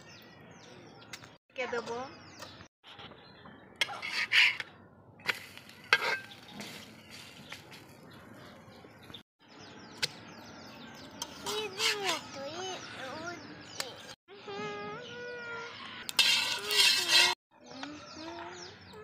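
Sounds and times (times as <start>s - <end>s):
metal spatula scraping a griddle: 3.8s - 4.6s, 5.3s - 6.8s, 11.2s - 12.3s, 16.1s - 17.4s.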